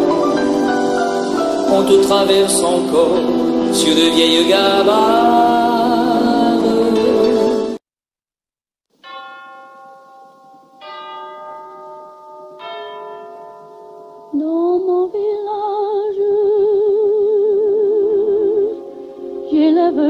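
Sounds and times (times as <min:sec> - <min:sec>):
bell strikes ringing: 0:09.0 - 0:14.8
woman singing with vibrato: 0:14.3 - 0:20.0.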